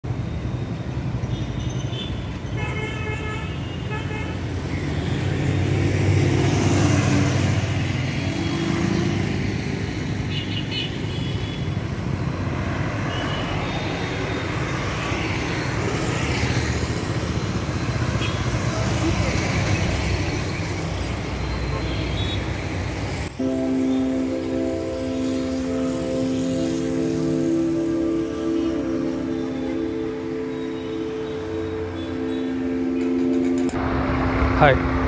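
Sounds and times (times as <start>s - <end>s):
vehicle engines passing: 4.4s - 35.0s
car horns honking: 23.4s - 33.8s.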